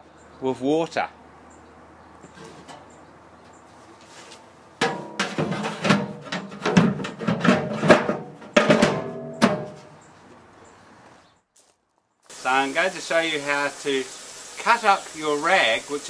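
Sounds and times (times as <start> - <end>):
metal clanks with ringing: 4.8 - 9.9.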